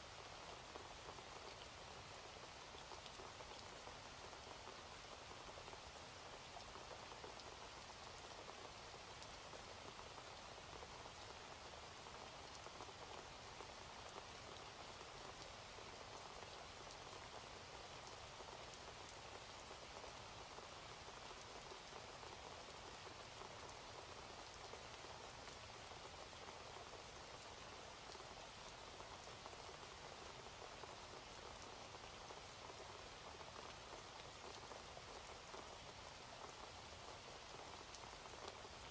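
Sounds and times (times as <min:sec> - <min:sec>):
steady rain falling: 0:00.0 - 0:38.9.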